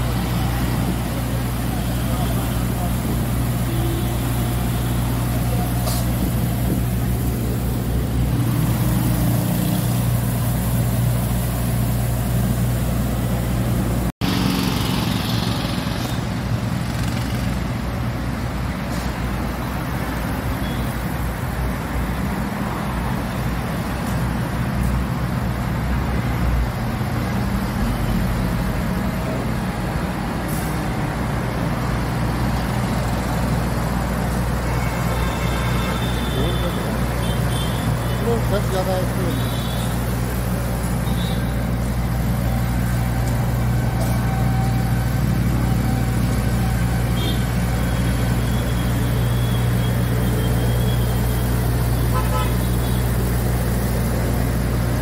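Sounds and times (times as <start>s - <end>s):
sweeper engine humming: 0.0s - 15.9s, 36.0s - 55.0s
street traffic: 0.0s - 55.0s.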